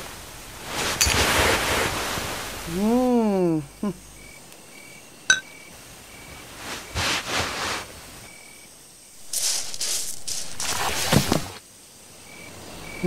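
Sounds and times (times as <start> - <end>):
rustling: 6.4 - 7.9, 9.2 - 11.6.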